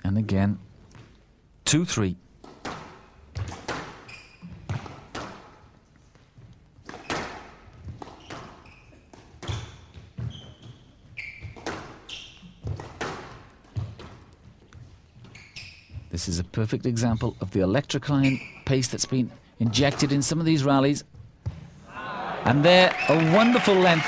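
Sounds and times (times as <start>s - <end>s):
squash ball hitting rackets: 2.4s - 5.8s, 6.8s - 16.1s
shoes squeaking on court: 2.4s - 20.3s
ball thudding against walls: 11.4s - 14.2s.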